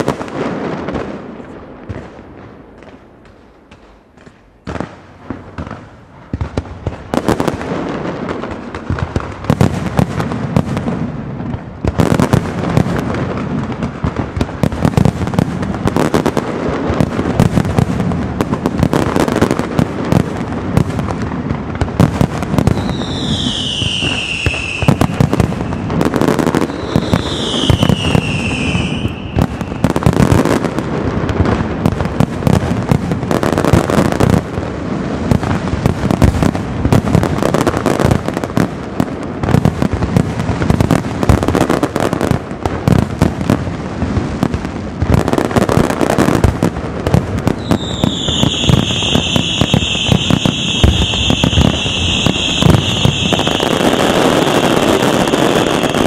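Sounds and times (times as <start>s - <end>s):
fireworks bursts and crackling: 0.0s - 56.0s
falling fireworks whistles: 20.8s - 34.4s, 47.0s - 56.0s.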